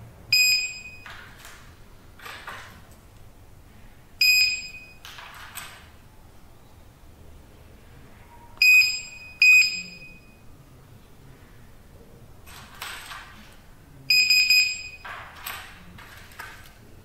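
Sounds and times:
keypad buzzer beeping: 0.4s - 1.1s, 4.2s - 5.0s, 8.6s - 10.4s, 14.1s - 15.1s.

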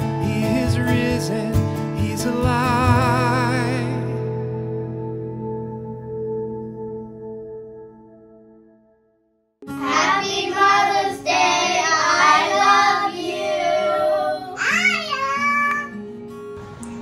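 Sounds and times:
children singing in unison: 9.7s - 14.6s.

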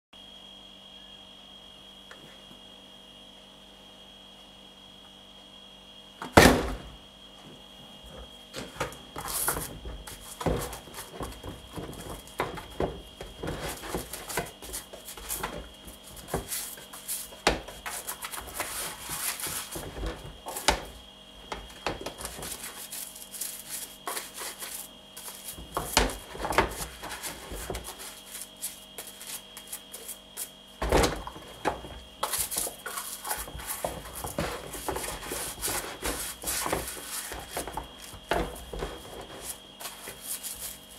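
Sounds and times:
brush scrubbing: 9.2s - 21.0s, 21.6s - 30.6s, 31.2s - 40.9s.

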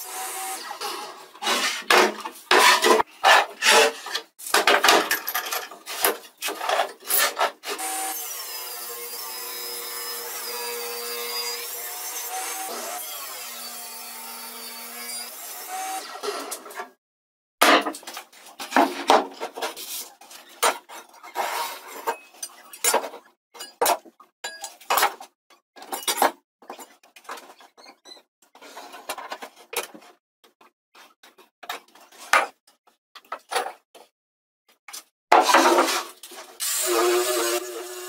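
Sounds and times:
wood panels knocking and scraping: 1.4s - 7.5s, 17.6s - 21.5s, 35.3s - 36.5s.

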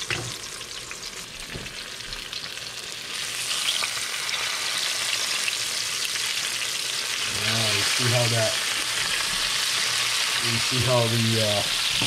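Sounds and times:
fish sizzling in hot fat: 0.0s - 12.0s.

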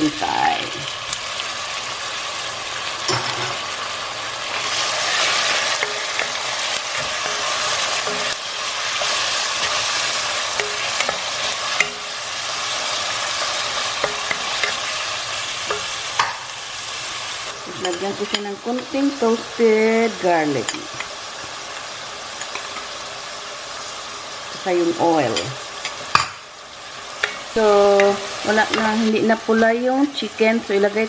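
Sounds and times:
chicken sizzling in hot oil: 0.0s - 31.0s
utensils ticking against pan: 10.5s - 12.1s.

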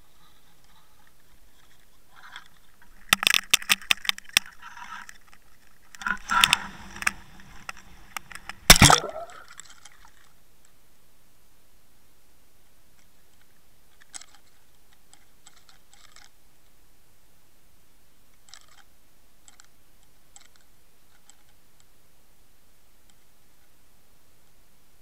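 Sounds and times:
underwater clicks and ticks: 0.2s - 10.8s, 13.0s - 16.8s, 18.3s - 21.9s
steady hiss: 4.5s - 15.4s.

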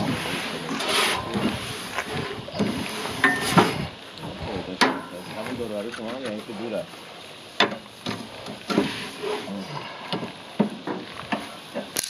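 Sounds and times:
paper towel scraping grill grates: 0.0s - 3.8s.

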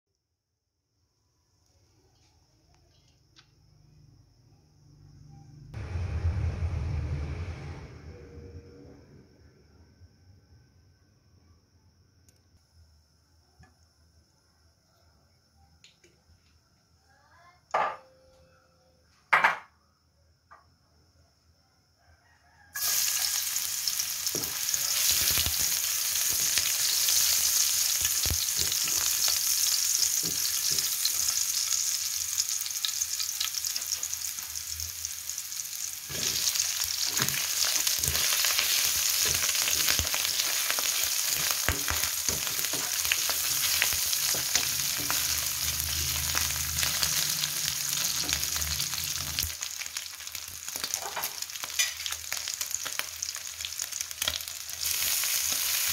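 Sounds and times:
garlic sizzling in hot oil: 22.8s - 55.9s.

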